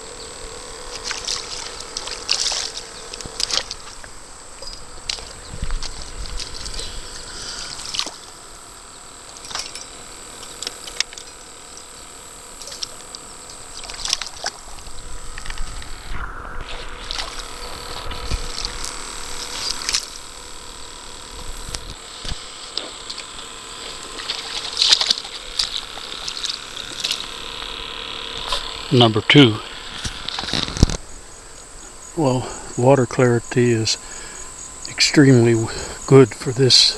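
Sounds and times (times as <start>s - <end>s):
river water splashing: 0.9s - 8.5s, 9.2s - 11.5s, 12.6s - 15.7s, 16.6s - 18.9s, 22.4s - 30.8s.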